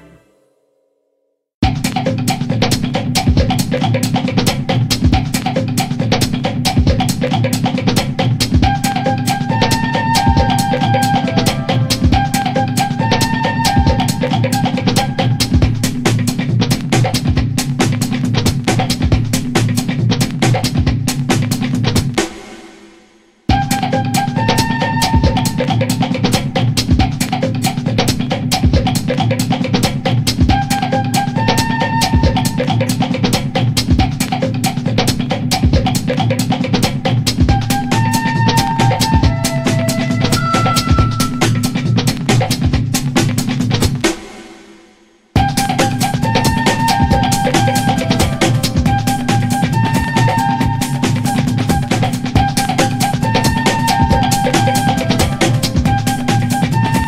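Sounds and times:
sustained melody notes: 0:00.0 - 0:00.9, 0:39.3 - 0:41.9
held notes: 0:00.0 - 0:01.0, 0:37.7 - 0:42.2, 0:45.4 - 0:57.0
drum beat: 0:01.6 - 0:22.9, 0:23.5 - 0:44.8, 0:45.4 - 0:57.0.

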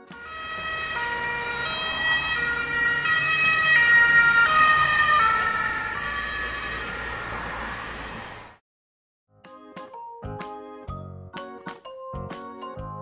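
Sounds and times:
ambulance siren passing: 0:00.0 - 0:08.6.

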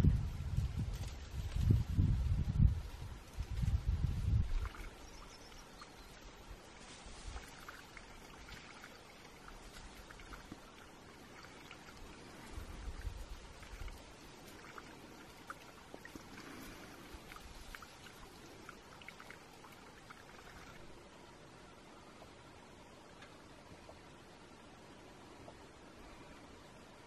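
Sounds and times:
wind buffeting microphone: 0:00.0 - 0:05.2, 0:12.0 - 0:15.2
trickling water: 0:03.5 - 0:21.1
light ticks: 0:23.2 - 0:24.0.

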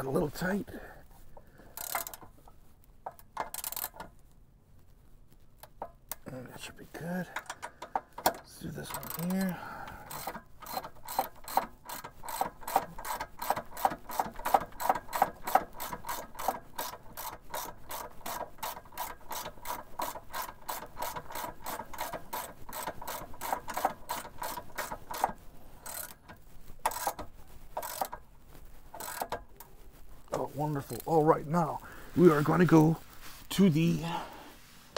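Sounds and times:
hand ratchet clicking: 0:01.7 - 0:02.4, 0:03.0 - 0:04.1, 0:07.4 - 0:28.2, 0:28.9 - 0:29.5.

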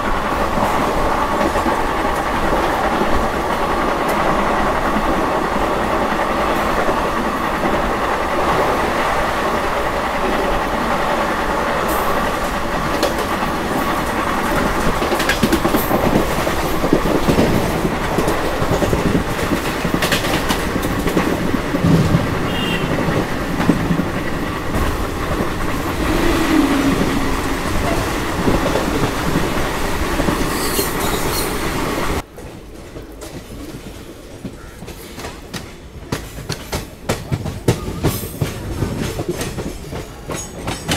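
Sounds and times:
train wheels rumbling on rails: 0:00.0 - 0:40.9.

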